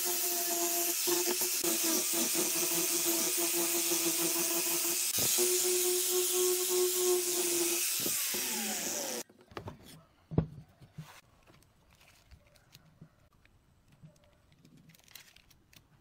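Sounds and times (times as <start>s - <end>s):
angle grinder sanding wood: 0.0s - 9.2s
faint handling sounds: 9.4s - 16.0s.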